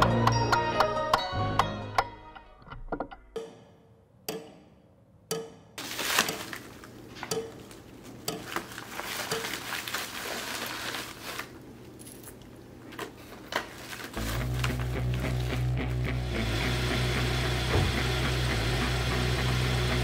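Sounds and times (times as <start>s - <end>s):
paper bag rustling: 5.8s - 7.1s, 8.5s - 16.0s.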